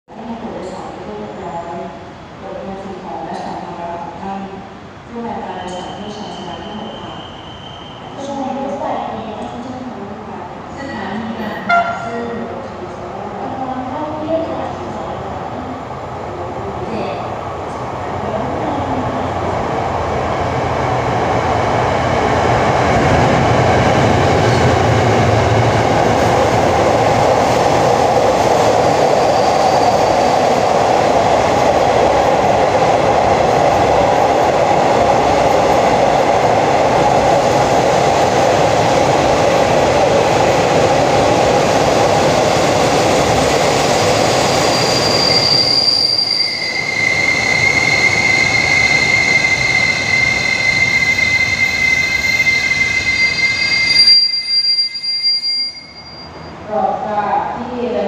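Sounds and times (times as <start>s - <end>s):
train rolling rumble: 0.1s - 55.1s
train wheel squeal: 5.5s - 8.4s, 29.2s - 30.4s, 43.9s - 56.6s.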